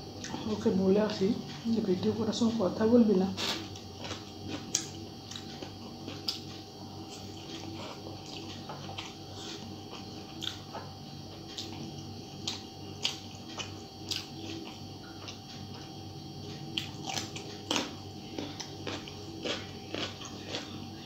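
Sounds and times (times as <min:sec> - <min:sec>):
faint steady hum: 0:00.0 - 0:21.0
person chewing with mouth clicks: 0:03.4 - 0:15.9, 0:16.8 - 0:20.8.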